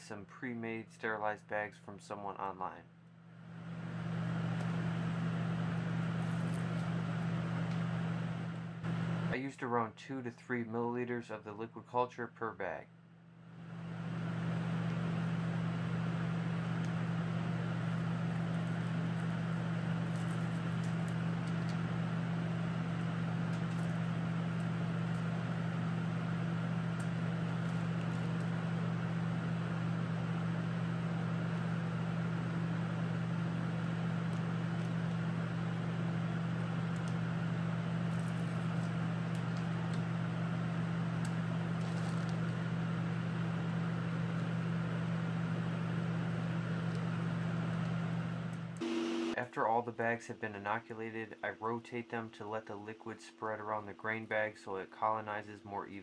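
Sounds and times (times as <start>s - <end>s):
blower humming: 3.3s - 9.4s, 13.4s - 49.5s.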